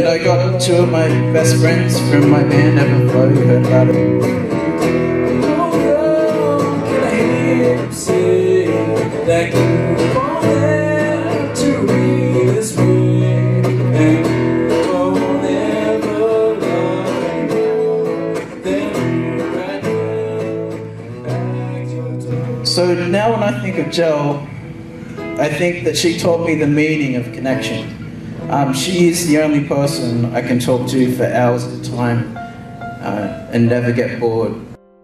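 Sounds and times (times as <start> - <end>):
man singing into a microphone: 0.0 - 4.7, 5.3 - 24.5
electric bass guitar: 0.0 - 33.1
strummed acoustic guitar: 0.0 - 34.8.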